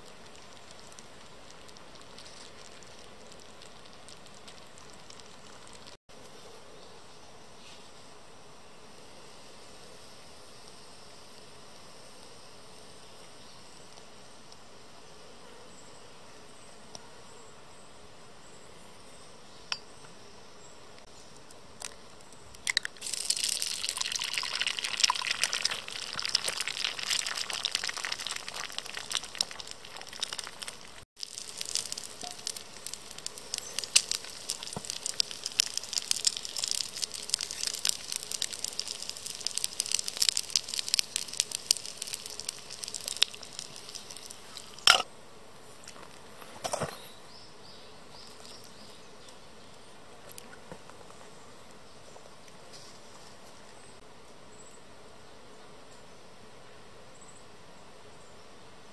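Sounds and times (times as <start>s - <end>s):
food sizzling in hot oil: 22.6s - 45.1s.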